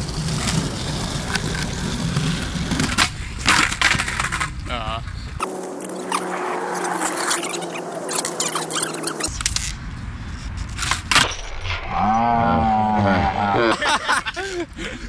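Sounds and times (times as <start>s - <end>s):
skateboard cracking and clattering: 0.0s - 4.8s.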